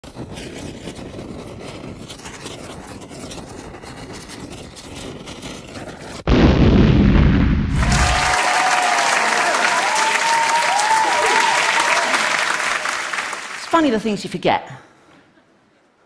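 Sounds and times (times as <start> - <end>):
loud explosion boom: 6.3 - 8.6
applause: 7.8 - 13.8.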